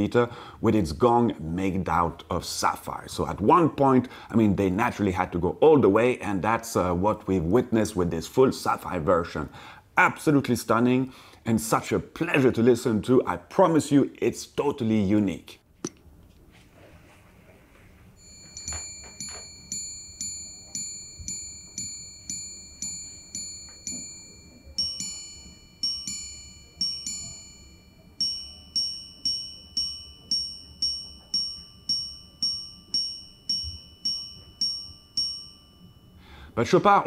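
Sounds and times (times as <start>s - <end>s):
watch chiming on gongs: 18.2s - 36.6s.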